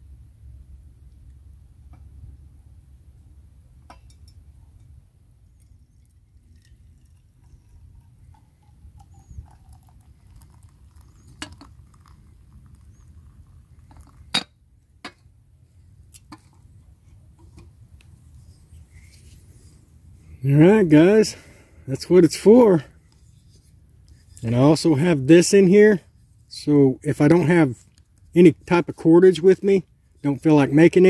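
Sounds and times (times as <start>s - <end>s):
clinks of enamel coffee pot: 3.9s - 4.9s
coffee pouring into mug: 5.9s - 14.4s.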